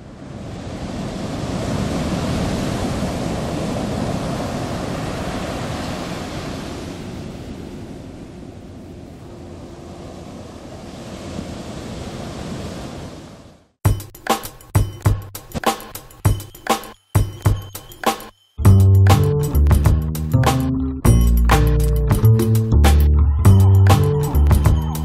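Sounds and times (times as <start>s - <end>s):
ocean waves breaking: 0.0s - 13.8s.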